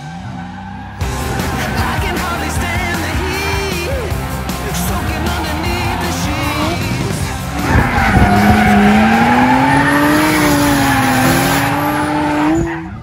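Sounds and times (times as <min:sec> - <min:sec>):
tyres squealing: 0:02.7 - 0:12.8
engine at high revs: 0:05.0 - 0:12.7.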